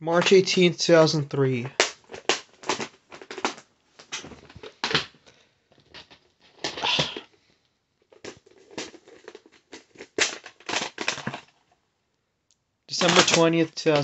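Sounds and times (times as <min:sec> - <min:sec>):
hard plastic cases clicking: 0:01.7 - 0:07.3, 0:08.2 - 0:11.6, 0:12.9 - 0:14.0.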